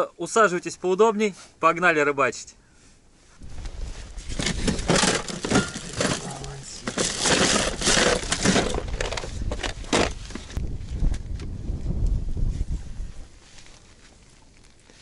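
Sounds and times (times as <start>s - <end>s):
plastic bags rustling: 4.2s - 10.6s
gear knocking and clattering: 4.4s - 10.2s.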